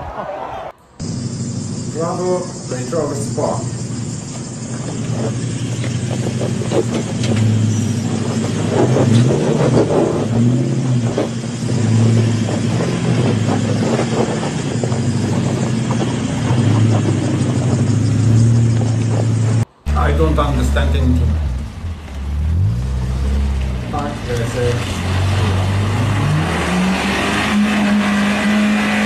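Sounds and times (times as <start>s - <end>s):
engine revving under load: 1.0s - 29.0s
tyres crunching on loose stones: 3.9s - 19.6s.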